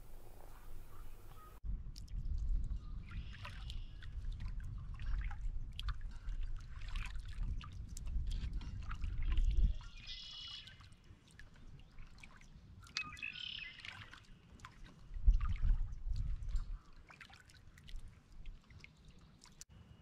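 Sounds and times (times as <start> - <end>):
bird calling: 0.0 - 1.6, 9.8 - 10.9, 12.8 - 14.3
wind rumble on microphone: 0.0 - 10.1, 15.0 - 16.8
water lapping against hull: 0.5 - 19.7.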